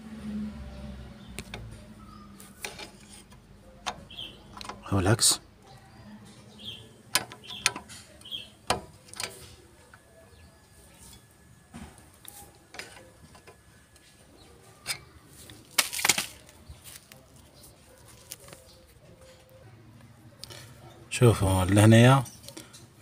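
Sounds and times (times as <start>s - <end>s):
screwdriver clicking on metal: 7.1s - 9.4s.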